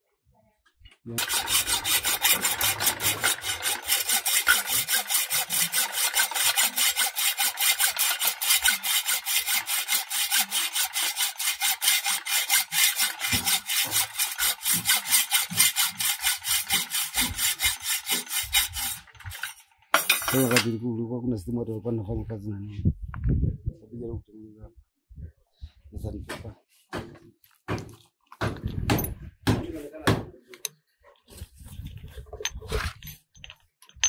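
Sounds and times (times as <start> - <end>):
hand saw cutting metal: 1.2 - 20.8.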